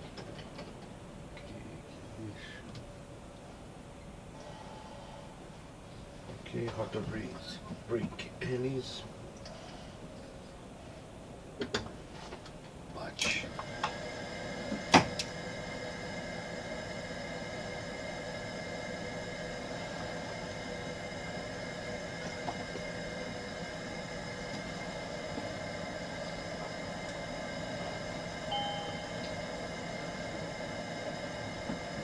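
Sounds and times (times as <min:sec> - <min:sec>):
cockpit electrical hum: 0:00.0 - 0:32.0
steady whining tones: 0:13.1 - 0:32.0
two-tone electronic beep: 0:28.5 - 0:29.2.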